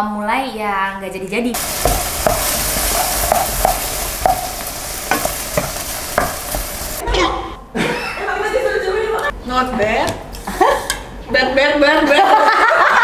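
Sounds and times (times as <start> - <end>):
food sizzling in a pan: 1.6 - 7.0
wooden spatula knocking pan: 1.6 - 7.0.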